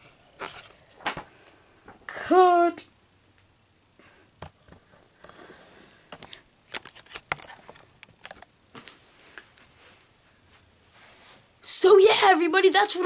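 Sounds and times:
camera handling clicks and rustles: 6.2s - 8.5s.

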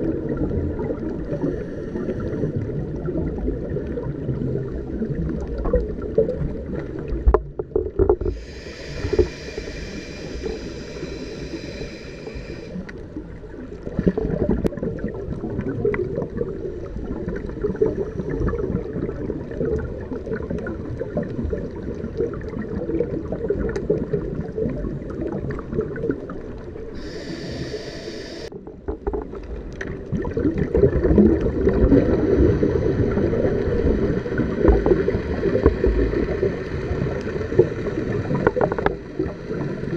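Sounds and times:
muffled underwater rumble: 0.0s - 39.9s
scuba bubbles: 0.0s - 39.9s
regulator air hissing: 8.3s - 12.9s, 27.0s - 28.5s.

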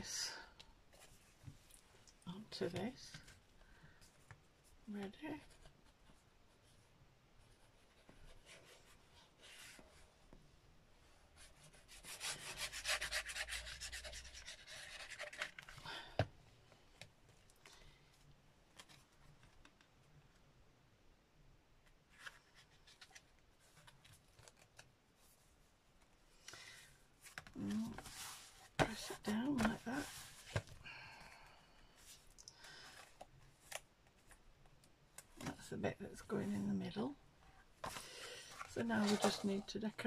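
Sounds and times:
card rustling: 12.6s - 15.9s, 37.8s - 39.7s.

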